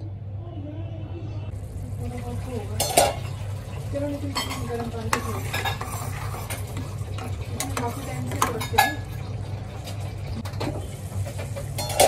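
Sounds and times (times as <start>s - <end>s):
ladle scraping and clinking in pot: 4.3s - 9.1s, 11.6s - 12.0s.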